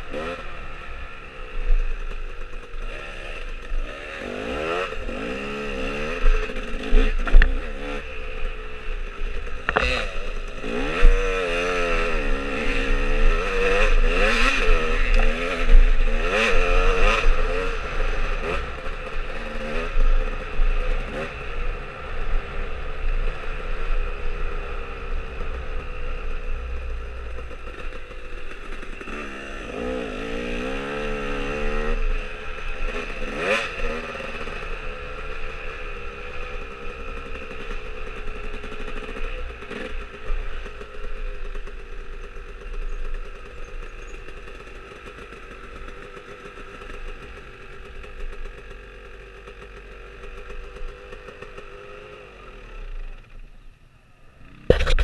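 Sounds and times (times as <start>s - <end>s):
dirt bike engine: 0.0s - 55.0s
sharp knock: 54.7s - 55.0s.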